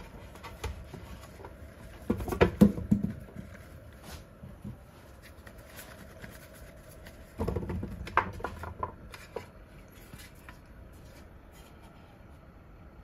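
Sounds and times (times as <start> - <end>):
mushrooms rustling: 3.2 - 12.1.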